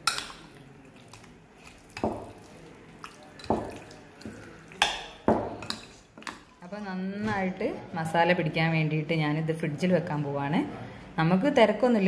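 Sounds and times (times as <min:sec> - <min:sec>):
wet squelches of marinade: 0:00.0 - 0:06.7.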